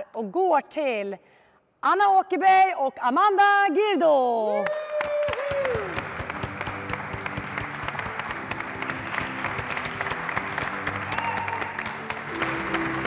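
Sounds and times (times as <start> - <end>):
crowd applause: 4.6 - 13.0
music playing: 5.7 - 13.0.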